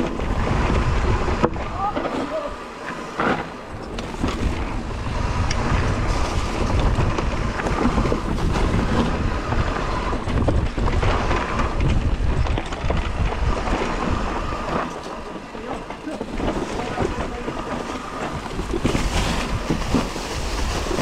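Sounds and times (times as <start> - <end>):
bike rumbling on dirt trail: 0.0 - 21.0
wind buffeting microphone: 0.0 - 21.0.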